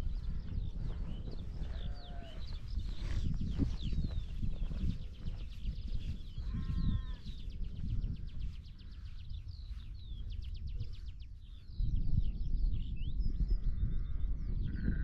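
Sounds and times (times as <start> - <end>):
birds singing: 0.0 - 15.0
wind rumble on microphone: 0.0 - 15.0
sheep bleating: 1.7 - 2.4.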